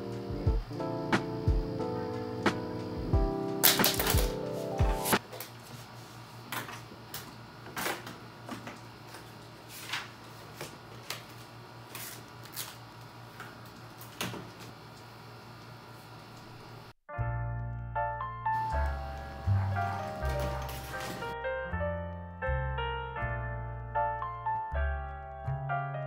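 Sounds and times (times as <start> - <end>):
faint steady hum: 0.0 - 17.0
paper rustling: 3.6 - 4.4, 9.6 - 12.8, 19.7 - 21.4.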